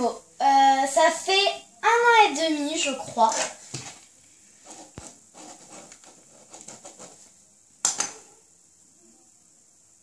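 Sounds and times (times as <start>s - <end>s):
pen scratching on paper: 4.6s - 7.3s.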